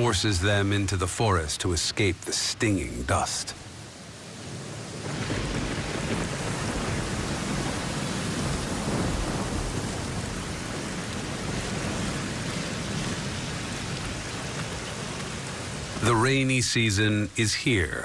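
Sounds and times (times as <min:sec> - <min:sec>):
steady rain: 0:00.0 - 0:18.0
low thunder rumble: 0:05.0 - 0:14.4.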